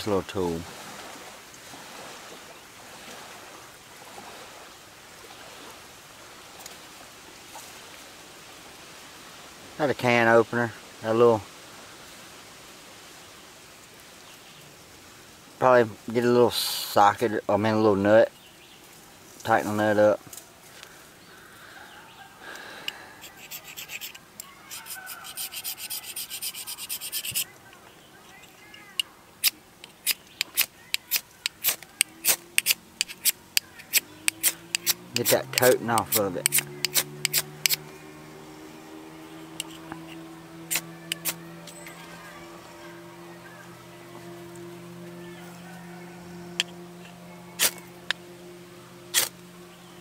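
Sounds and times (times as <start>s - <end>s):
river flowing: 0.0s - 50.0s
striker scraping ferro rod: 22.9s - 27.5s, 28.4s - 37.9s, 39.6s - 41.8s, 47.6s - 48.2s, 49.1s - 49.4s.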